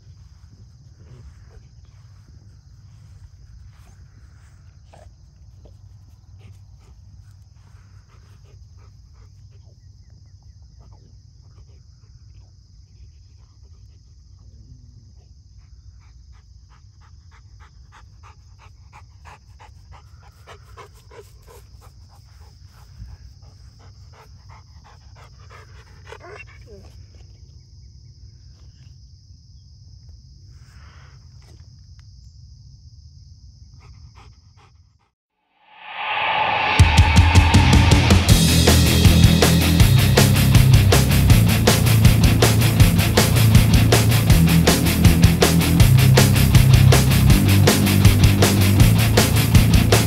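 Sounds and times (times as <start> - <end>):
dog sniffing in grass: 0.5 - 9.6, 17.4 - 26.0
dog panting: 4.8 - 9.9, 15.5 - 26.9, 33.8 - 35.1
low rumble: 35.6 - 50.0.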